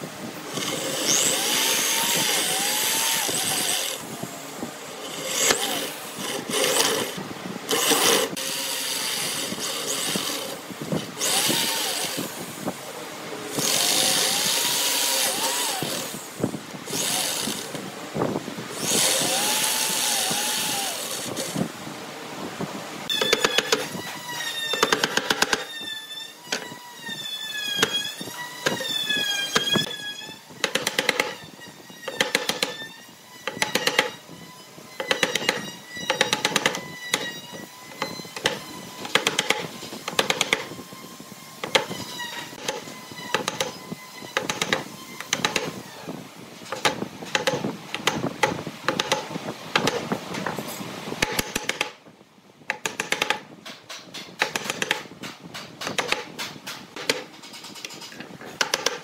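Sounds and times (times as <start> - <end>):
mallet striking chisel: 46.8 - 50.0, 51.2 - 51.9, 52.7 - 57.3, 58.6 - 59.0.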